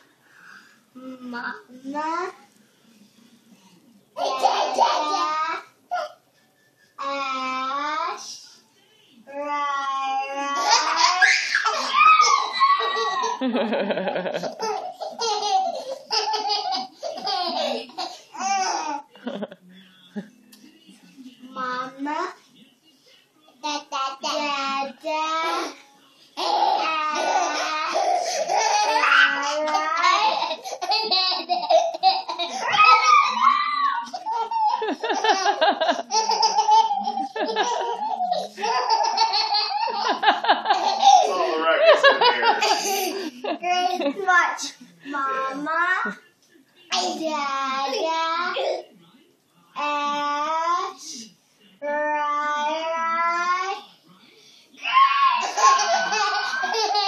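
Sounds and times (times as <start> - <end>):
baby laughing: 10.6 - 19.0, 26.4 - 44.2, 55.4 - 57.0.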